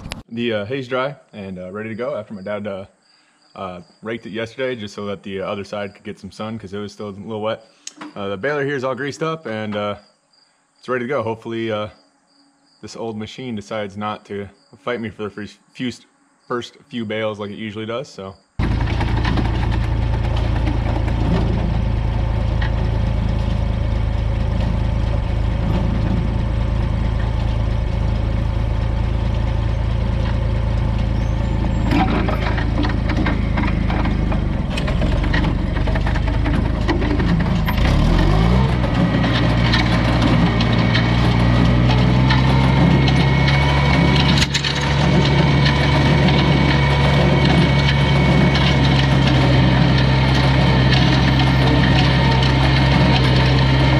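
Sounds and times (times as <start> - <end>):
tractor engine idling and revving: 0.0 - 0.3, 18.6 - 53.9.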